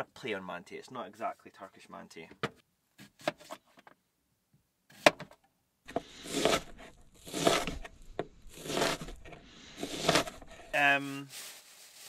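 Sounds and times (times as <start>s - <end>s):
knife rasping through onion: 5.9s - 10.8s.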